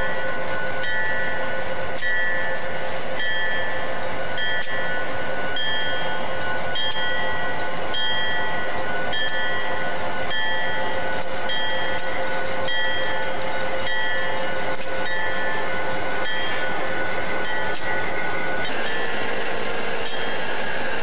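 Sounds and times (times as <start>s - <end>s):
diesel locomotives idling: 0.0s - 21.0s
high mechanical whine: 0.0s - 21.0s.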